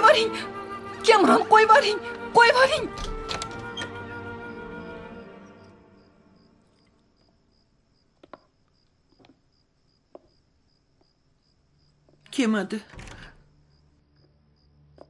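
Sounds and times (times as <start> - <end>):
music: 0.0 - 7.0
crickets chirping: 0.0 - 15.0.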